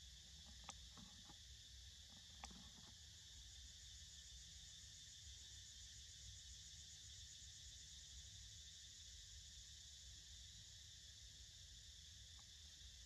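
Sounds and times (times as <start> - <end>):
small click: 0.4 - 1.4, 2.1 - 3.0.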